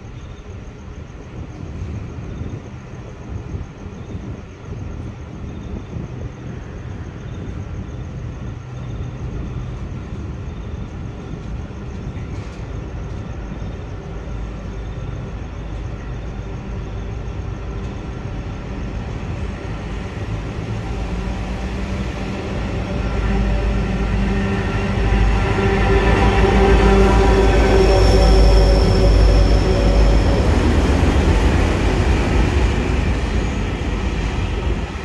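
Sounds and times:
diesel locomotive engine drone: 0:00.0 - 0:35.0.

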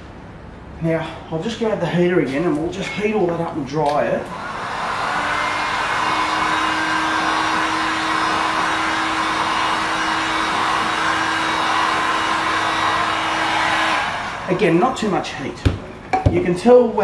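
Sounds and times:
heat gun blowing air: 0:04.3 - 0:14.6.

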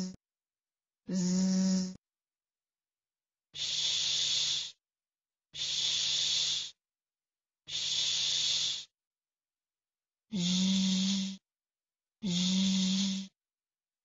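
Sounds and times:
person saying sh: 0:01.1 - 0:02.0, 0:10.3 - 0:11.4, 0:12.2 - 0:13.3.

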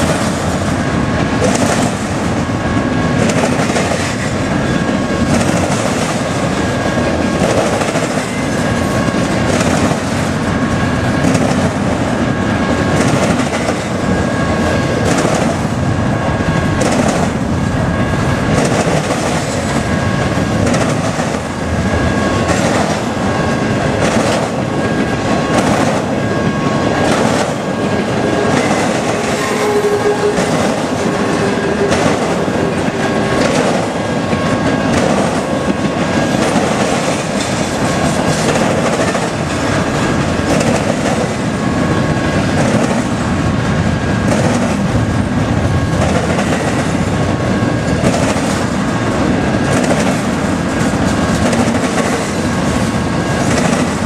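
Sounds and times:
freight train wheels clicking: 0:00.0 - 0:54.0
crossing warning bell ringing: 0:21.5 - 0:40.6.

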